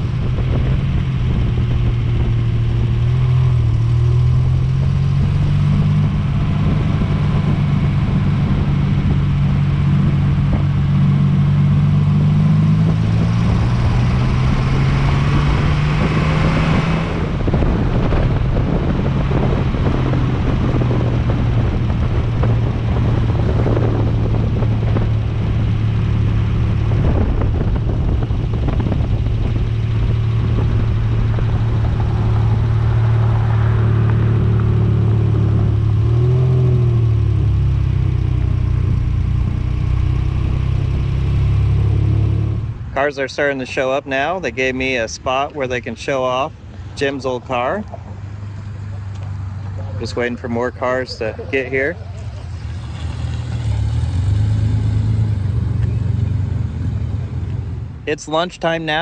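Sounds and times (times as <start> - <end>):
wind noise: 0.0 - 43.1
car engine under load: 0.0 - 59.0
road noise: 0.0 - 59.0.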